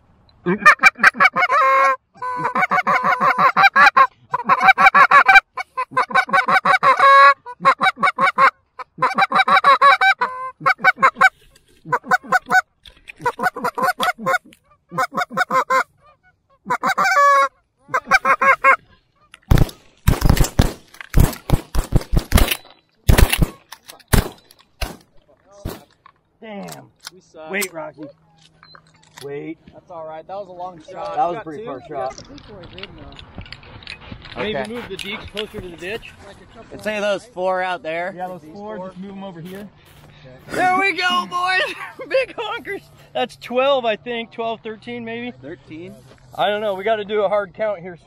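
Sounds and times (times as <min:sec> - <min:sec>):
geese honking and clucking: 0:00.5 - 0:19.5
shotgun shots: 0:19.5 - 0:25.9.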